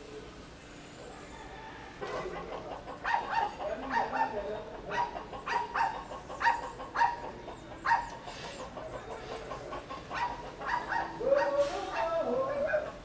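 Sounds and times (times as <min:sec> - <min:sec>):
animal barking: 0:02.8 - 0:08.2, 0:09.8 - 0:13.0.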